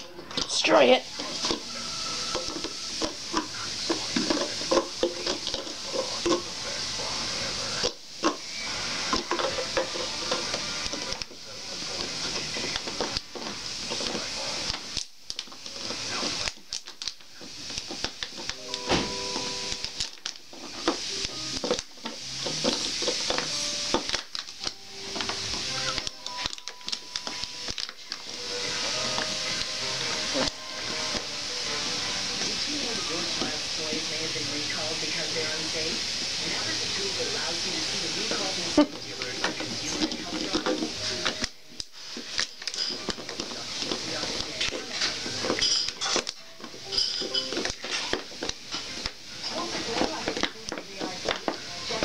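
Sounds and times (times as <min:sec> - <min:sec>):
dog chewing plastic bottle: 0:02.3 - 0:06.5, 0:19.8 - 0:28.3.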